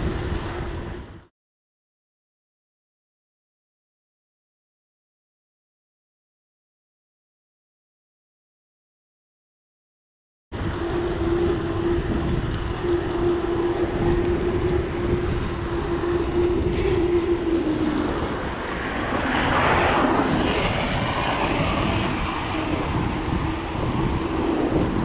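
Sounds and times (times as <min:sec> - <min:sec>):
wind rush: 0:00.0 - 0:01.3, 0:10.5 - 0:25.0
steady hum: 0:10.6 - 0:25.0.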